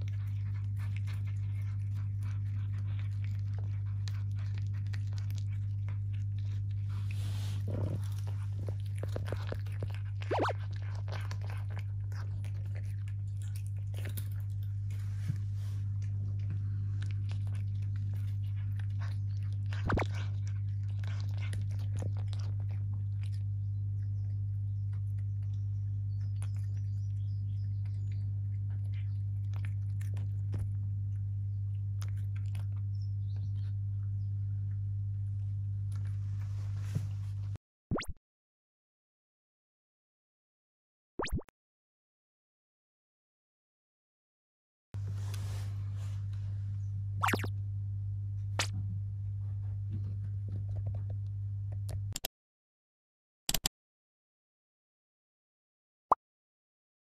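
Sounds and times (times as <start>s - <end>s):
cats crunching treats: 0.0s - 37.4s, 48.6s - 52.2s
steady low hum: 0.0s - 37.6s, 45.0s - 52.2s.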